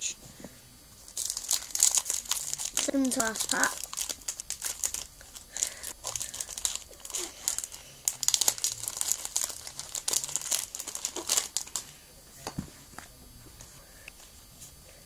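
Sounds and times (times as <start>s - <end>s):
foil wrapper crinkling and tearing: 1.1s - 11.9s.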